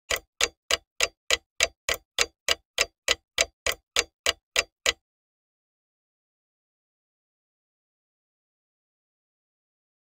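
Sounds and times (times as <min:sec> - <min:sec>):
clock ticking: 0:00.0 - 0:05.0.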